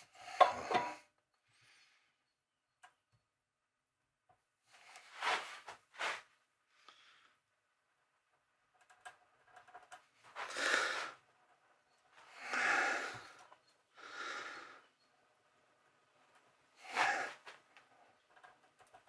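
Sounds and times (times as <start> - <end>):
person breathing noisily: 10.4 - 11.2, 12.3 - 13.4, 14.0 - 14.9.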